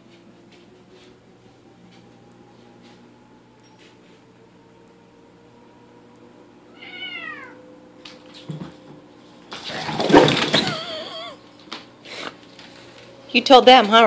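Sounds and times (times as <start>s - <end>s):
cats yowling: 6.7s - 7.8s, 9.7s - 11.4s
cats hissing and screeching: 6.7s - 8.8s, 9.5s - 11.4s.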